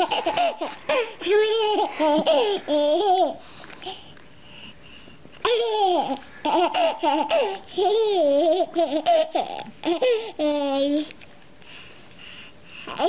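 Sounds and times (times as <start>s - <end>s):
baby laughing: 0.0s - 3.4s, 5.4s - 11.0s.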